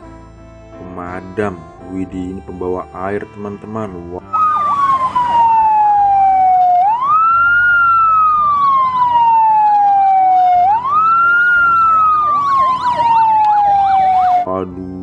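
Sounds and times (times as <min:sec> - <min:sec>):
siren wailing: 0:04.2 - 0:14.9
siren warbling: 0:04.2 - 0:15.0.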